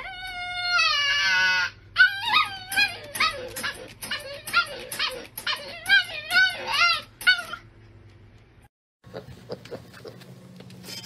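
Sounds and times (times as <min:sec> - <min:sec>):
dog howling: 0:00.0 - 0:07.6
dog whining and yipping: 0:00.0 - 0:07.7.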